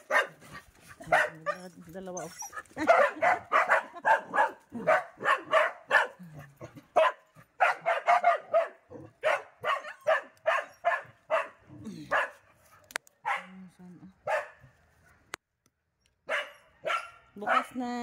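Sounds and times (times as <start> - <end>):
dog barking: 0.0 - 1.8, 2.5 - 12.5, 13.2 - 13.6, 14.2 - 15.2, 16.2 - 17.9.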